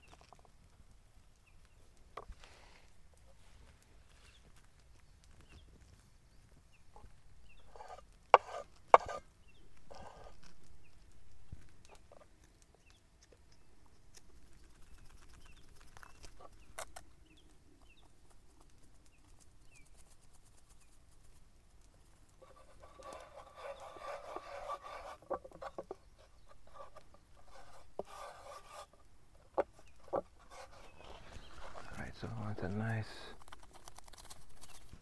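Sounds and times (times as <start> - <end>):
birds chirping: 4.0 - 8.0, 8.9 - 18.4, 19.0 - 20.0, 22.4 - 33.4.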